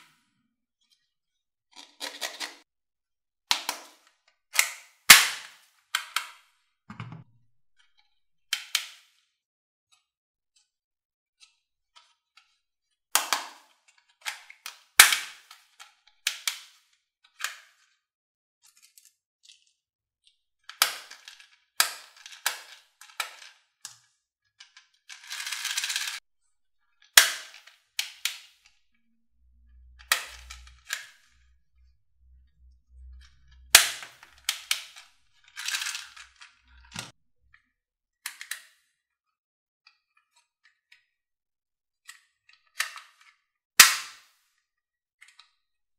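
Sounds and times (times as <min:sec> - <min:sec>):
plastic toy gun clicks: 0:04.6 - 0:06.4, 0:13.2 - 0:16.8, 0:20.7 - 0:24.0, 0:27.2 - 0:28.5, 0:38.3 - 0:38.8, 0:42.8 - 0:44.3.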